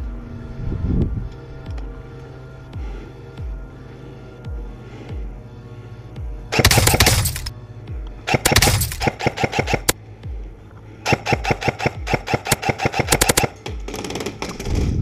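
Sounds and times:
airsoft gun firing rapid shots: 0:06.5 - 0:07.5, 0:08.3 - 0:10.0, 0:11.0 - 0:14.7.

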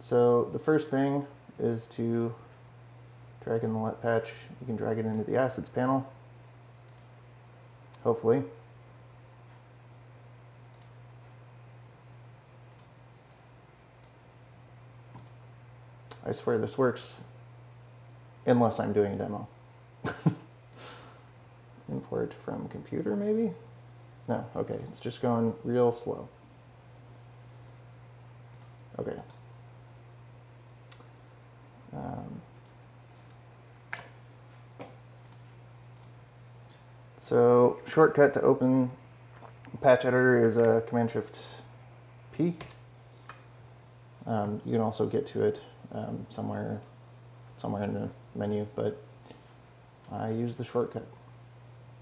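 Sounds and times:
low steady hum: 0:00.0 - 0:52.0
computer mouse clicks: 0:06.8 - 0:07.2, 0:10.7 - 0:11.0, 0:12.7 - 0:13.4, 0:15.1 - 0:15.4, 0:28.5 - 0:29.4, 0:32.5 - 0:34.1, 0:34.8 - 0:36.8
faint computer mouse clicks: 0:06.9 - 0:07.1, 0:15.1 - 0:15.4.

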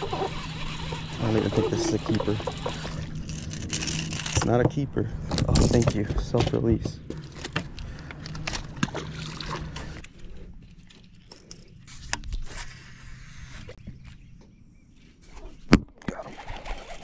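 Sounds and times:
fishing reel clicks and rustles: 0:00.0 - 0:04.6
low hum: 0:00.0 - 0:15.3.

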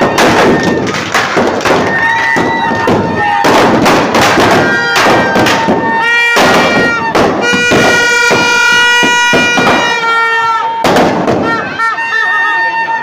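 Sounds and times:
firecrackers banging and crackling: 0:00.0 - 0:12.9.

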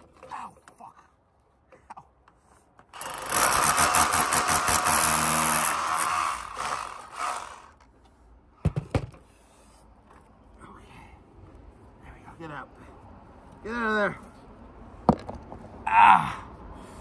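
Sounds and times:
rotary hammer drilling brick: 0:02.9 - 0:07.8.

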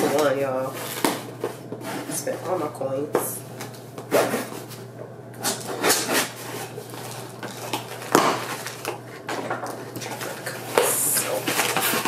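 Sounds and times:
cardboard packaging rustling: 0:05.4 - 0:12.0.

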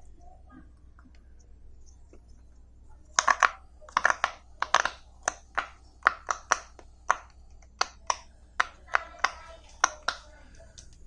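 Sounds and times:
fidget toy bubbles popping: 0:03.1 - 0:11.0.

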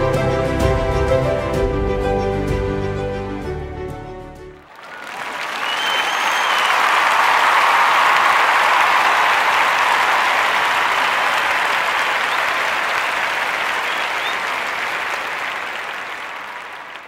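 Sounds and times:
crowd applauding: 0:04.6 - 0:17.0.

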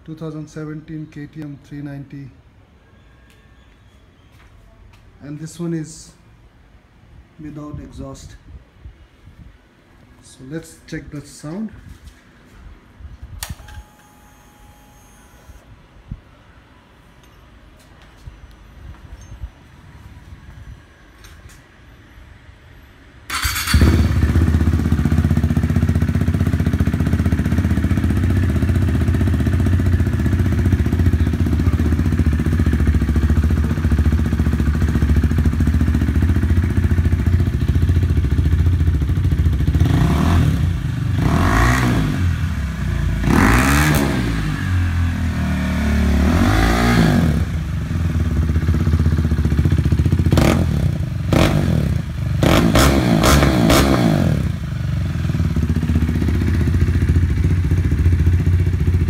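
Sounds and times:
motorcycle engine idling and revving: 0:23.3 - 0:59.0.

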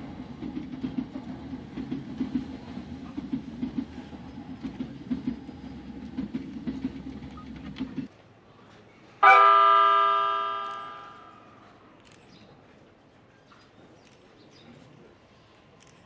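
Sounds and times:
train running rumble: 0:00.0 - 0:08.2
rail clicks: 0:00.0 - 0:09.2, 0:10.3 - 0:16.0
train horn chord: 0:09.2 - 0:11.4.

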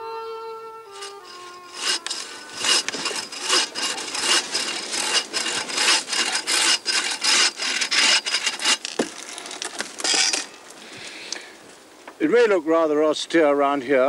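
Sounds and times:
bow saw cutting branch: 0:00.9 - 0:10.6.

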